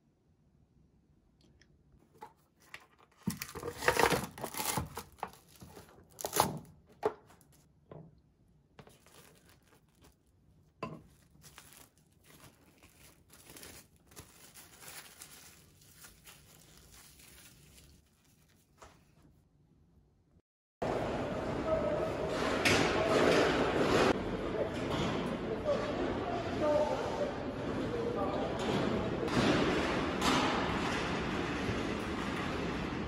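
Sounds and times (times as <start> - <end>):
plastic film crinkling: 3.2 - 6.6, 8.8 - 18.8.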